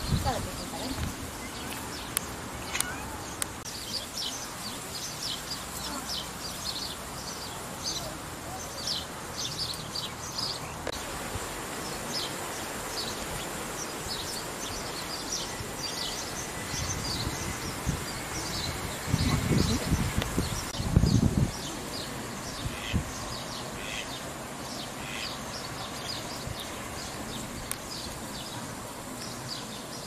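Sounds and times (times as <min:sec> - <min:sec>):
wind buffeting microphone: 0:00.0 - 0:02.6, 0:11.0 - 0:23.8
small birds chirping: 0:00.0 - 0:30.0.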